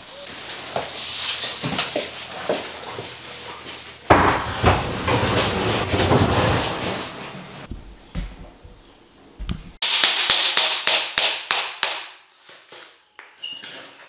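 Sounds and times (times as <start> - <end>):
high ringing note: 9.8 - 10.8
hammer striking metal: 9.8 - 12.3.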